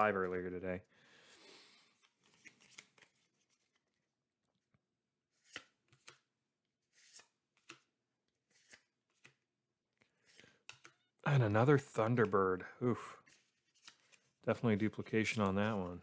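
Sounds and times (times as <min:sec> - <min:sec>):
cards sliding swishes: 0:01.4 - 0:03.9, 0:05.3 - 0:09.4, 0:13.2 - 0:16.0.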